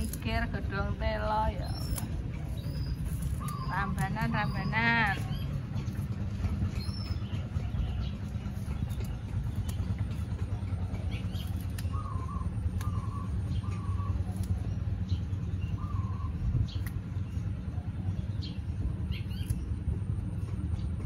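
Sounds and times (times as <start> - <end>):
bird calling: 0.0 - 19.8
low rumble: 0.0 - 21.0
vegetable stems snapping: 11.2 - 14.6, 16.7 - 17.1.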